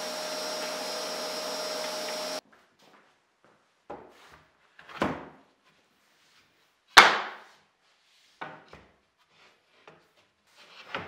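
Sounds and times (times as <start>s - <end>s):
wooden boards set on workbench: 3.9s - 11.0s
loud wooden clap: 7.0s - 7.5s.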